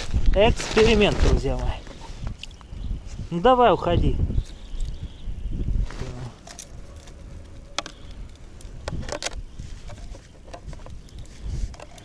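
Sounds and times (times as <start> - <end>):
wind rumble on microphone: 0.0 - 12.0
plastic clicks and knocks: 8.8 - 11.0.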